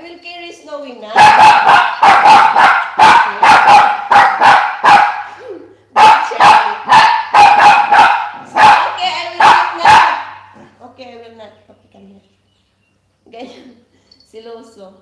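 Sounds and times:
small dog yapping: 1.2 - 5.4, 6.0 - 10.6.

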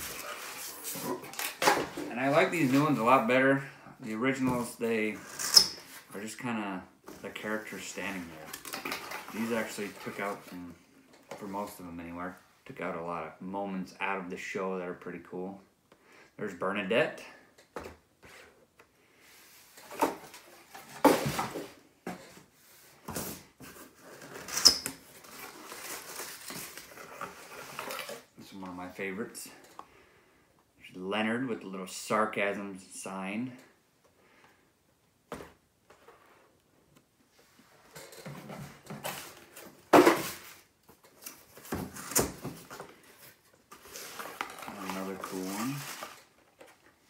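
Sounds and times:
cardboard rustling: 19.7 - 28.3, 38.0 - 47.0
cardboard scraping: 41.4 - 46.8.

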